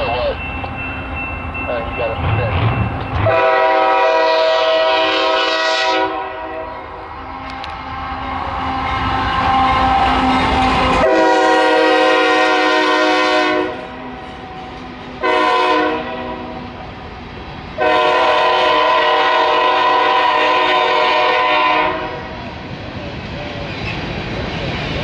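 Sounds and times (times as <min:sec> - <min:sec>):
train rolling noise: 0:00.0 - 0:25.0
locomotive air horn blasts: 0:03.2 - 0:06.8, 0:11.0 - 0:14.0, 0:15.2 - 0:16.6, 0:17.8 - 0:22.3.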